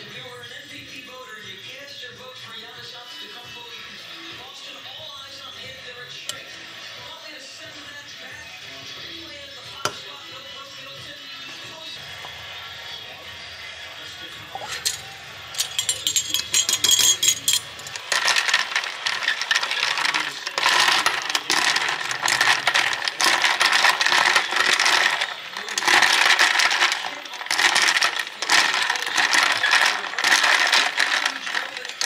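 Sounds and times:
ice cubes clinking in a glass: 0:14.6 - 0:32.0.

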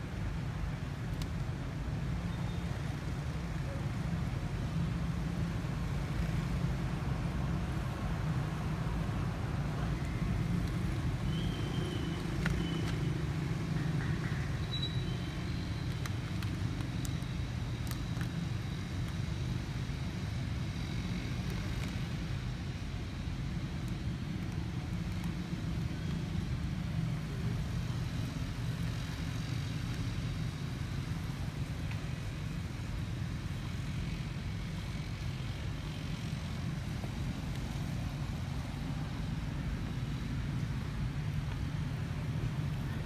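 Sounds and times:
low outdoor rumble: 0:00.0 - 0:43.0
faint high-pitched calls: 0:13.7 - 0:15.8.

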